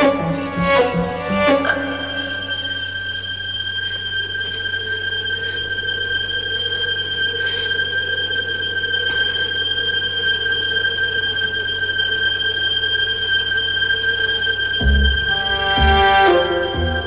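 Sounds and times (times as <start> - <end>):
steady high-pitched tone: 0.0 - 4.2, 14.8 - 17.0.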